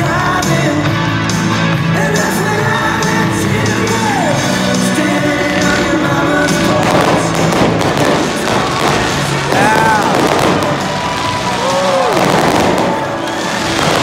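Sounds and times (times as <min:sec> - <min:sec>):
song over sound system: 0:00.0 - 0:14.0
fireworks bangs and crackling: 0:03.0 - 0:14.0.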